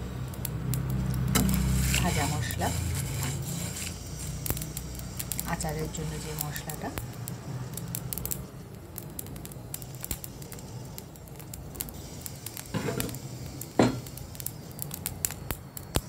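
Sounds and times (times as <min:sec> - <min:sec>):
spices crackling and popping in pan: 0:00.0 - 0:16.0.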